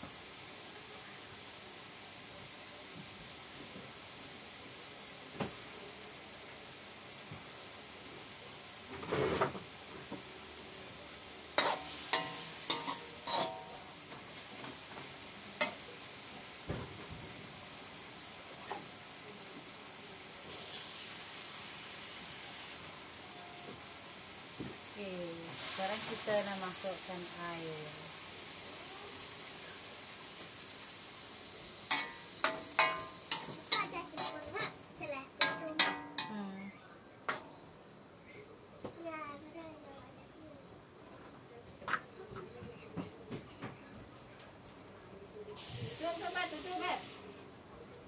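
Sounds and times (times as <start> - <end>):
water hissing in hot wok: 0.0 - 36.1, 45.5 - 47.4
leaves sizzling: 0.0 - 36.7, 45.6 - 47.5
ladle clinking on wok: 11.6 - 13.8, 31.9 - 33.6, 35.4 - 36.4
ladle scraping metal wok: 11.6 - 13.9, 31.9 - 34.8.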